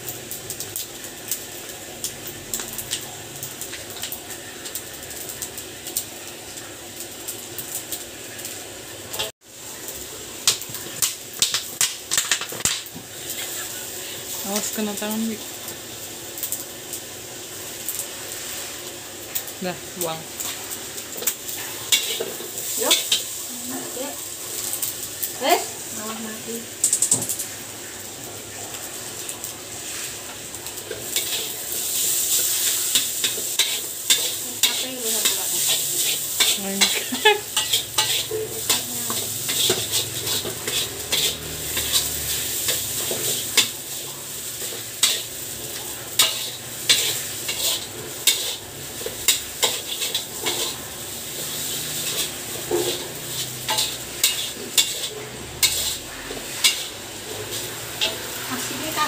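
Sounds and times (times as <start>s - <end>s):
food sizzling: 0.0s - 59.0s
metal spatula scraping a wok: 21.2s - 24.0s, 29.8s - 44.0s, 44.6s - 59.0s.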